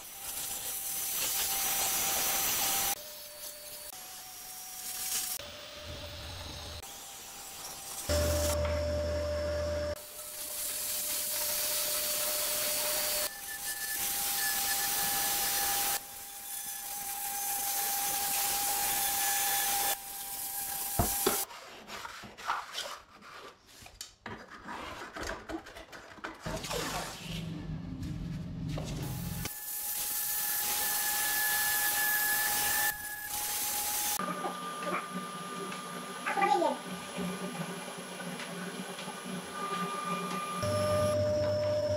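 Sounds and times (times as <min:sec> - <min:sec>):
angle grinder grinding: 0:00.0 - 0:21.5
scraping and rubbing: 0:21.4 - 0:29.4.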